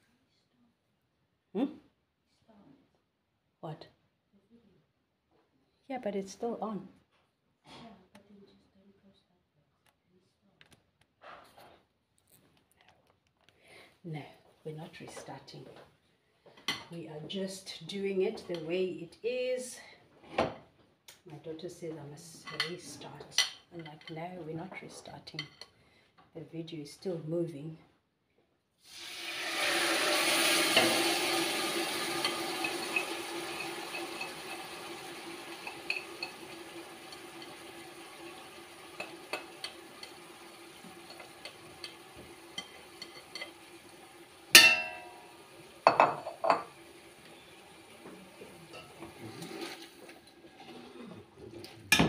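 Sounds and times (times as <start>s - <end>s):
food sizzling in a pot: 28.8s - 51.2s
utensils clinking: 29.6s - 43.9s, 44.6s - 45.3s, 48.6s - 52.0s.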